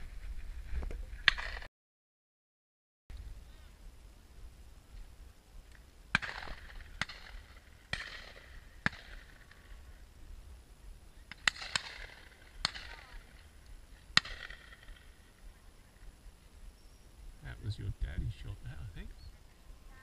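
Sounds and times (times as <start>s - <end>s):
distant shotgun shots: 1.3s - 1.7s, 6.1s - 9.8s, 11.3s - 13.4s, 14.1s - 15.2s.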